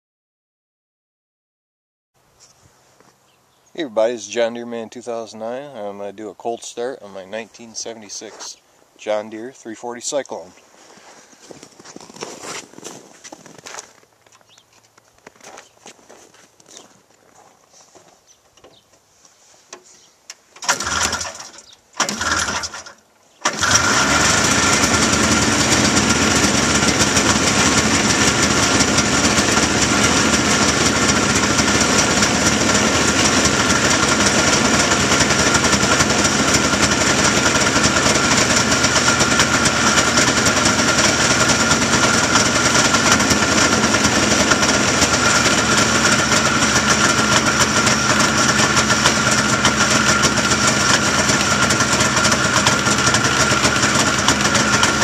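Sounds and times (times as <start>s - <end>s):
two-stroke engine starting and idling: 20.6s - 55.0s.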